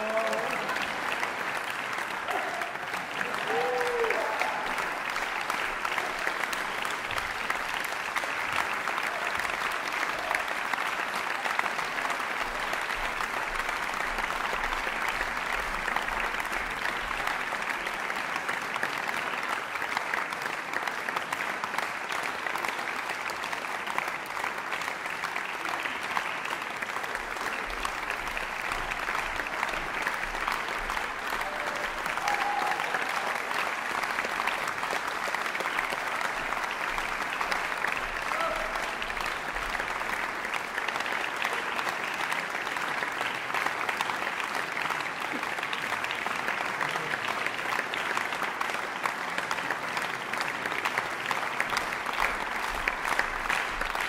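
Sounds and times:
audience applauding: 0:00.0 - 0:54.0.

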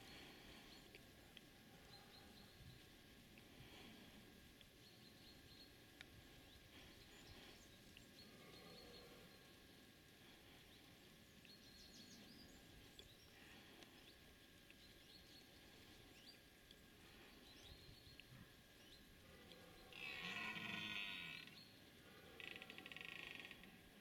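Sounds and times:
deer stag bellowing: 0:19.9 - 0:21.4.

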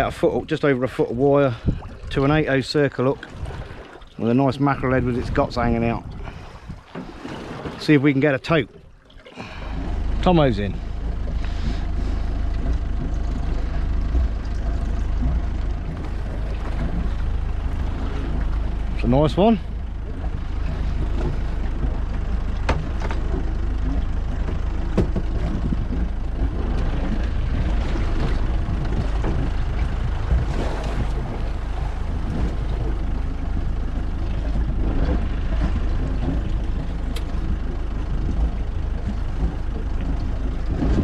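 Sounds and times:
boat low rumble: 0:00.0 - 0:41.0.

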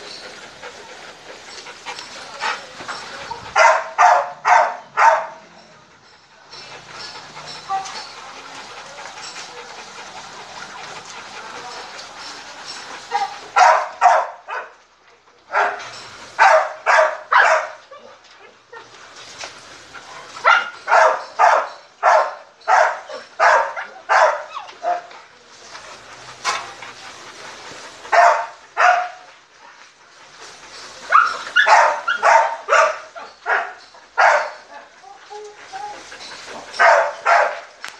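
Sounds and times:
treadmill rolling hiss: 0:00.0 - 0:04.4, 0:06.3 - 0:37.9
dog barking: 0:03.6 - 0:05.4, 0:13.2 - 0:14.7, 0:15.5 - 0:15.8, 0:16.4 - 0:17.8, 0:20.4 - 0:25.1, 0:28.1 - 0:29.2, 0:31.1 - 0:34.6, 0:36.8 - 0:37.7.

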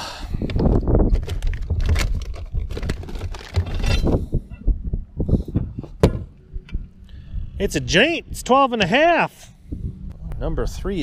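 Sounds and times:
plastic boxes clattering and scraping: 0:01.1 - 0:04.2.

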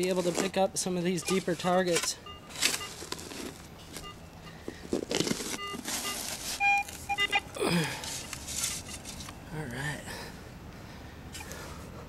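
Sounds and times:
digging tool scraping soil: 0:00.0 - 0:04.1, 0:04.9 - 0:07.1
metal detector beeps: 0:00.8 - 0:07.5.

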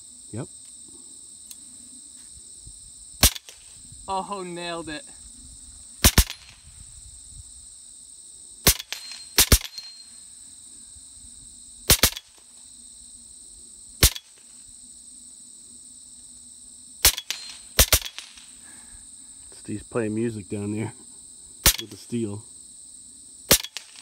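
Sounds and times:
insects trilling: 0:00.0 - 0:24.0
air rifle shots cracking: 0:03.2 - 0:03.6, 0:06.0 - 0:06.6, 0:08.6 - 0:09.8, 0:11.9 - 0:12.3, 0:17.0 - 0:18.4, 0:21.6 - 0:22.0, 0:23.5 - 0:24.0.

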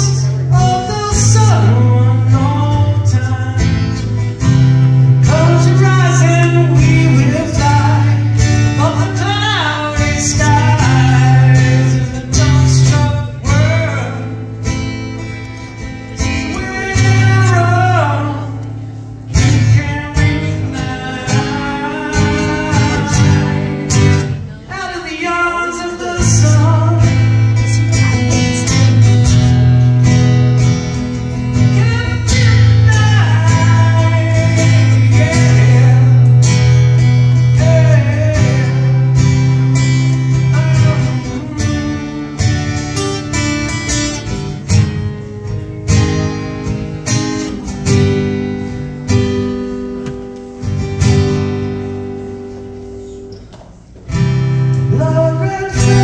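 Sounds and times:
man singing: 0:00.0 - 0:14.5, 0:16.2 - 0:29.2, 0:31.5 - 0:42.7, 0:54.7 - 0:56.0
strummed acoustic guitar: 0:00.0 - 0:56.0.

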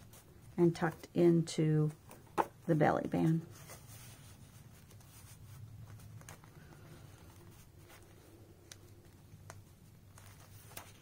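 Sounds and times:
paper rustling and ticks: 0:04.7 - 0:11.0.

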